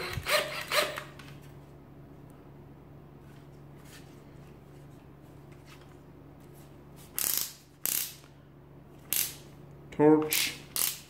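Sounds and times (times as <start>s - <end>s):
drill collar ratcheting clicks: 10.3s - 11.0s.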